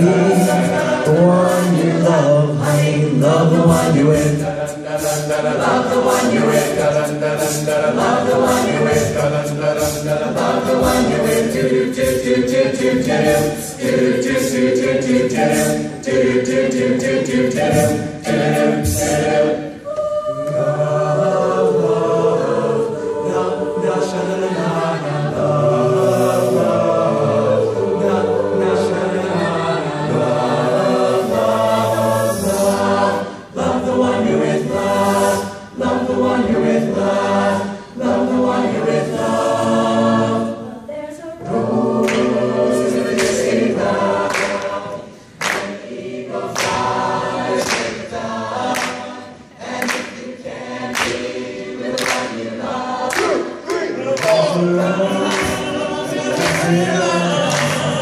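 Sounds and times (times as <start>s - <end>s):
vocal percussive beat: 0.0s - 21.6s, 41.4s - 58.0s
a cappella group singing: 0.0s - 58.0s.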